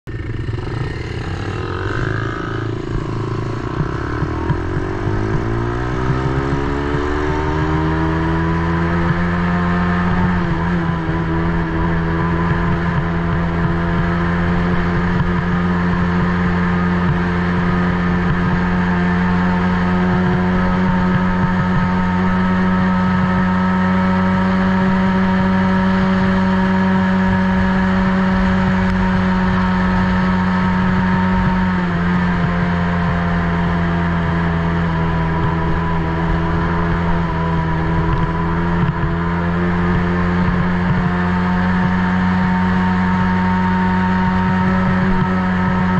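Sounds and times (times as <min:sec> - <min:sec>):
atv engine revving: 0:00.1 - 0:45.9
constant rush of noise: 0:00.1 - 0:45.9.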